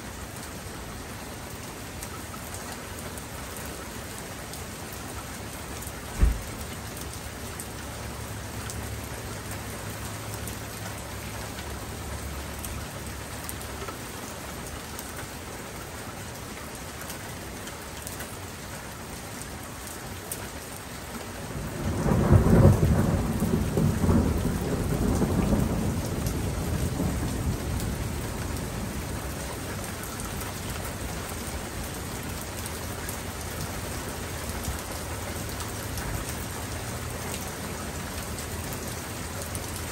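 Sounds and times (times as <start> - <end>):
steady rain falling: 0.0 - 39.9
brief low thump: 6.2 - 6.6
rumble of thunder: 21.6 - 29.1.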